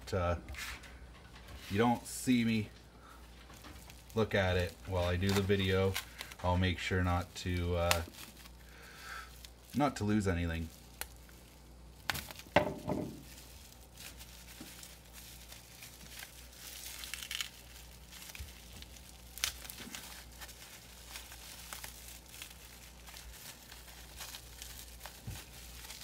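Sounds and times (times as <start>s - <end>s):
bubble wrap crinkling: 0.6s - 26.0s
packing tape slit and torn: 4.6s - 6.4s, 7.5s - 8.6s, 14.2s - 26.0s.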